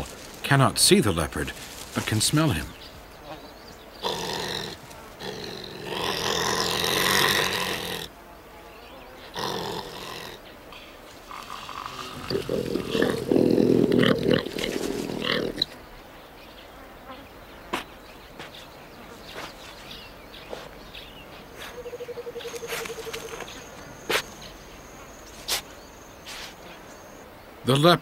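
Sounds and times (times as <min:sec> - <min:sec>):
harsh animal growl: 0:04.0 - 0:08.1, 0:09.3 - 0:10.4, 0:11.3 - 0:15.7.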